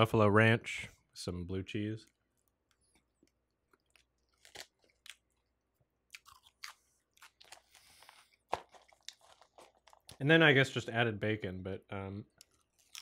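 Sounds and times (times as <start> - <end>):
chewing crunchy lettuce: 2.3 - 5.5, 6.1 - 10.3, 12.3 - 13.0.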